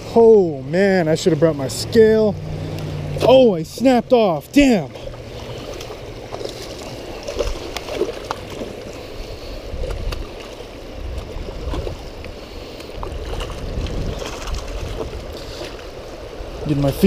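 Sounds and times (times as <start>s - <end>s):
low rumbles: 0.0s - 17.0s
stream water over rocks: 0.0s - 17.0s
wading splashes and knocks: 0.0s - 17.0s.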